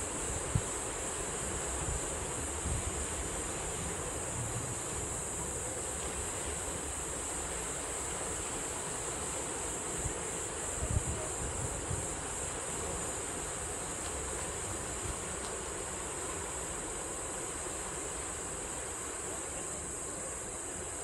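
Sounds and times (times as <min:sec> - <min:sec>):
steady high hiss: 0:00.0 - 0:21.0
surf washing over rocks: 0:00.0 - 0:21.0
wind buffeting microphone: 0:10.0 - 0:12.4.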